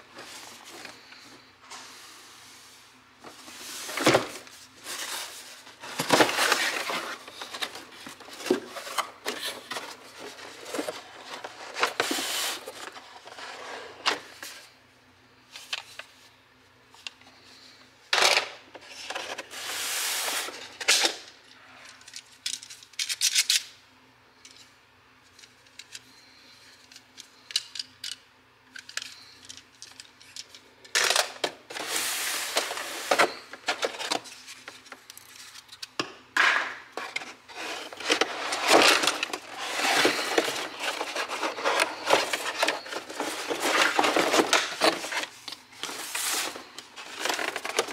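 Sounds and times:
cardboard packaging rustling: 3.2 - 14.6, 31.5 - 35.6, 37.0 - 47.9.

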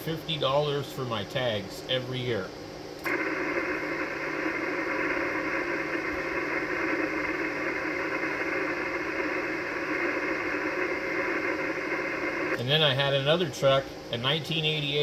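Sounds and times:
radio band noise hiss: 0.0 - 15.0.

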